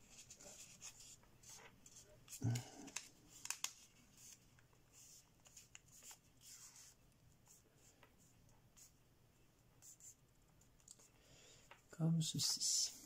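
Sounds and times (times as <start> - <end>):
paper crackles: 0.0 - 7.0
paper rustling and crinkling: 0.0 - 7.0.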